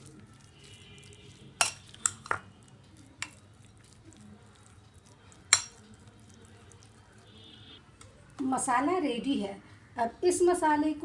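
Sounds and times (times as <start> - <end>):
fork stirring marinade in bowl: 0.0 - 7.5
fork clinking against bowl: 1.6 - 2.4, 5.5 - 5.9.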